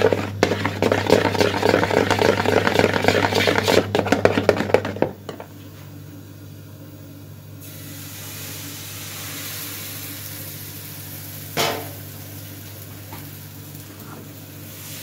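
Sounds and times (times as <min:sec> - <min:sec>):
whisk beating batter in bowl: 0:00.0 - 0:05.2.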